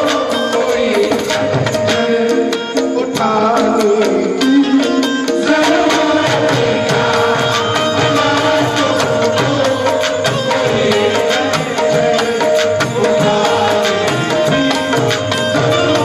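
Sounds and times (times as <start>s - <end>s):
hand drum beat: 0.0s - 16.0s.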